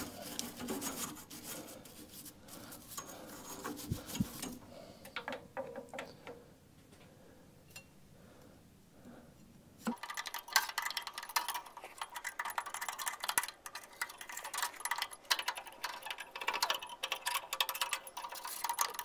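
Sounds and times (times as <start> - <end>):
hand tool scraping metal: 0.0 - 4.6.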